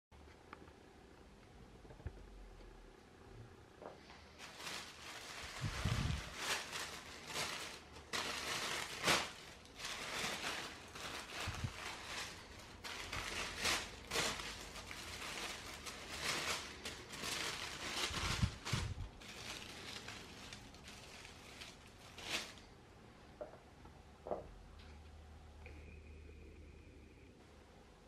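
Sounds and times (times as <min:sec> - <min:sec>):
tissue paper rustling: 0:04.3 - 0:22.7.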